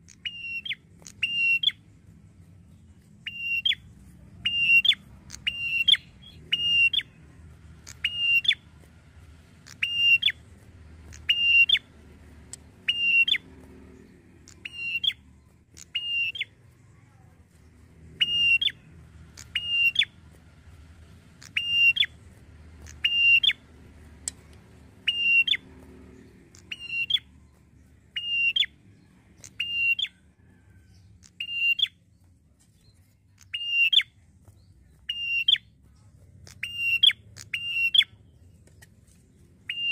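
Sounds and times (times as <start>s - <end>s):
bird two-part call: 7.8s - 8.6s, 9.6s - 10.4s, 11.0s - 11.9s, 12.8s - 13.4s, 14.4s - 16.5s, 18.2s - 20.2s, 21.4s - 22.2s, 22.8s - 23.6s, 25.0s - 25.6s.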